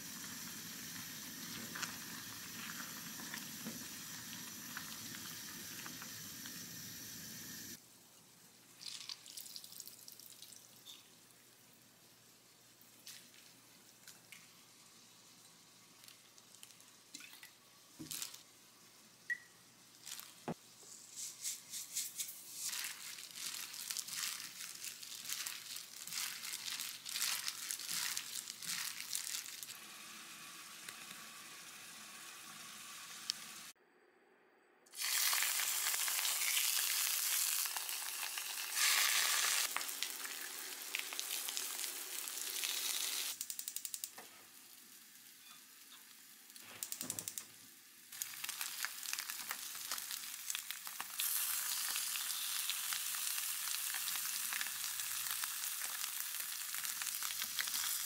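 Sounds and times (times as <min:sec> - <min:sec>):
soup simmering hiss: 0:00.0 - 0:33.8, 0:34.9 - 0:58.0
cabbage crinkling in a bowl: 0:20.0 - 0:20.4, 0:21.4 - 0:29.8, 0:48.2 - 0:58.0.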